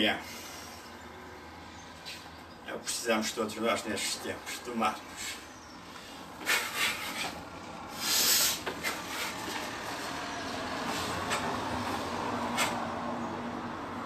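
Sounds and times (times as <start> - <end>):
loud hiss: 7.9 - 8.7.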